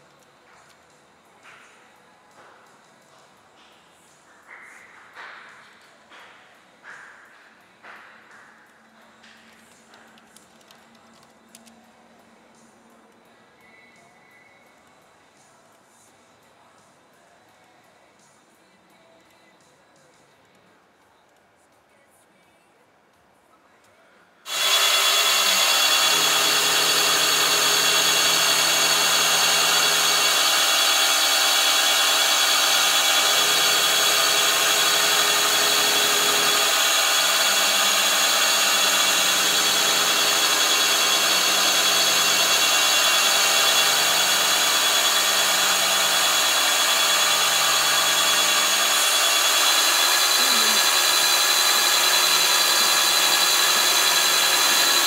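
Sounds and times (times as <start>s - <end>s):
milling machine cutting metal: 24.5s - 55.0s.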